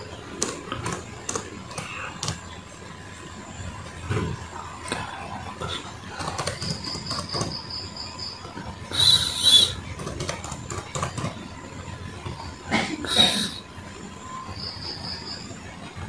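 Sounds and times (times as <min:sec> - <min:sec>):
keyboard keys clicking: 0:00.4 - 0:02.4, 0:06.1 - 0:07.6, 0:10.0 - 0:11.4
high chirps: 0:06.4 - 0:10.2
high-pitched screech: 0:08.9 - 0:09.8.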